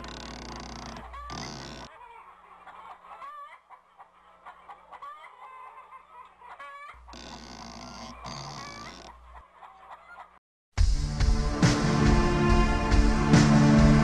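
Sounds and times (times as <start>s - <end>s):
chickens clucking: 0.0s - 10.4s.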